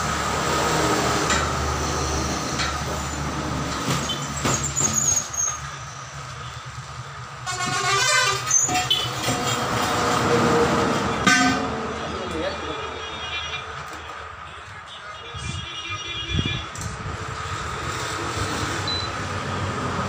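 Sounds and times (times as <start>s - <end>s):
road traffic passing: 0.0s - 20.0s
vehicle horn: 7.4s - 9.6s, 12.7s - 16.8s.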